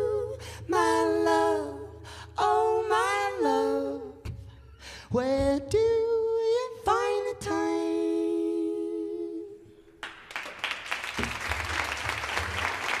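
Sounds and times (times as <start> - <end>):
two voices singing in harmony: 0.0 - 9.9
applause: 10.0 - 13.0.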